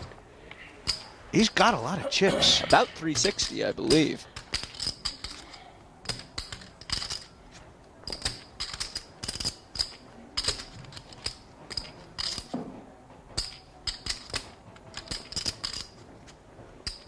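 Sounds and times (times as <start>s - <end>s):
poker chips clicking together: 2.7s - 7.4s, 8.0s - 12.5s, 13.4s - 16.0s.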